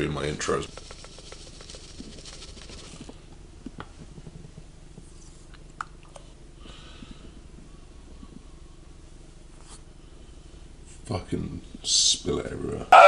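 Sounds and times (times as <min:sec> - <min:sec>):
steady low hum: 0:00.0 - 0:13.0
plastic scoop scraping and tapping: 0:00.6 - 0:03.1.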